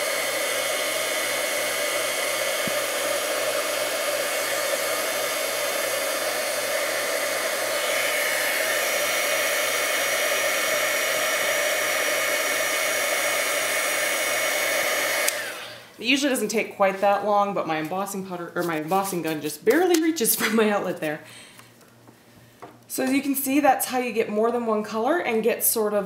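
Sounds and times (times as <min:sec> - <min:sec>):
heat gun blowing: 0:00.0 - 0:16.4.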